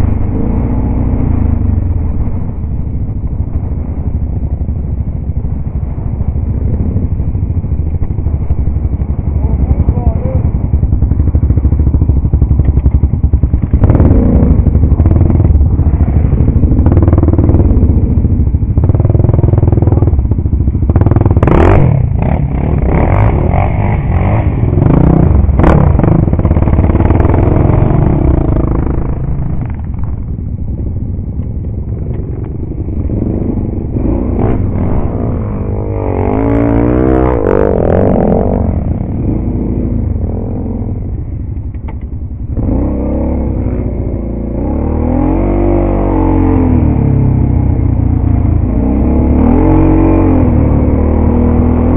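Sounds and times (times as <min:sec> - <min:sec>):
engine revving: 0:00.0 - 0:02.4, 0:11.6 - 0:30.3, 0:31.7 - 0:41.3, 0:42.5 - 0:51.9
atv engines running: 0:00.0 - 0:51.9.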